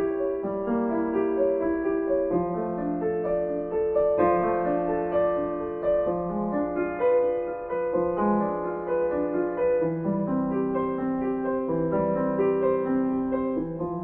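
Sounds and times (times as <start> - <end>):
calm piano music: 0.0 - 14.0.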